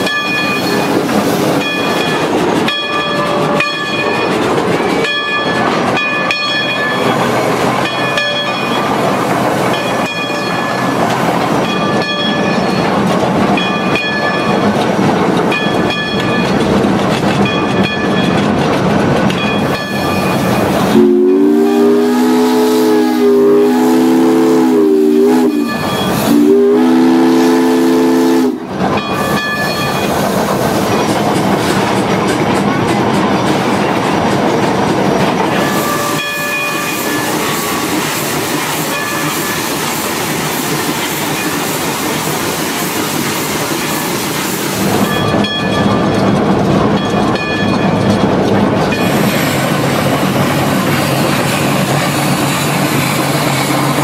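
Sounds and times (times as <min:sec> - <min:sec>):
locomotive running noise: 0:00.0 - 0:54.0
steam whistle blasts: 0:20.9 - 0:28.7, 0:35.6 - 0:37.9.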